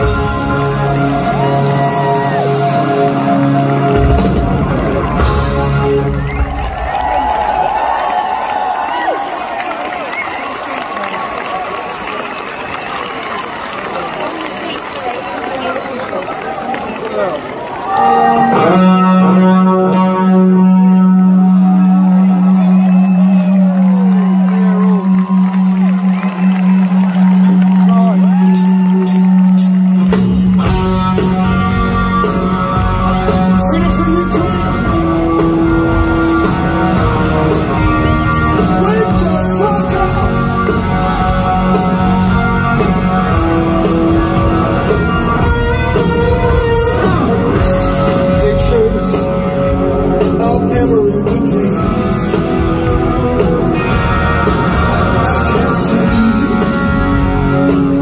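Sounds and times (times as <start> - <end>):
bass guitar: 0.0 - 7.4, 17.9 - 58.0
electric guitars: 0.0 - 9.4, 13.6 - 58.0
drums: 0.0 - 11.0, 20.3 - 58.0
person singing: 17.9 - 23.9, 33.4 - 35.8, 38.3 - 42.2, 46.0 - 53.9, 54.7 - 58.0.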